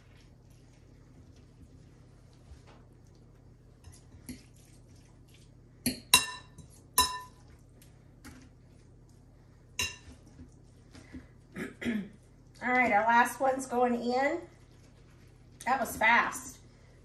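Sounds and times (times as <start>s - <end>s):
utensil clinking on casserole dish: 5.8s - 7.6s, 9.8s - 10.5s.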